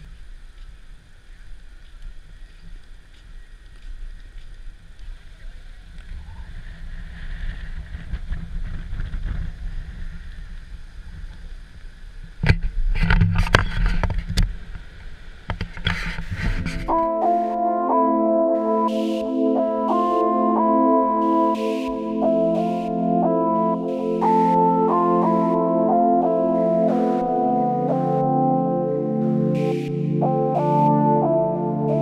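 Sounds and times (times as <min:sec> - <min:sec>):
muffled wind rumble on microphone: 0:00.0 - 0:17.0.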